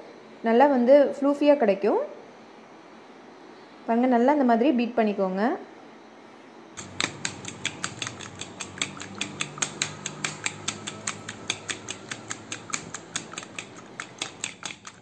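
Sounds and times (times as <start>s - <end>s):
fork whisking egg in bowl: 6.8s - 15.0s.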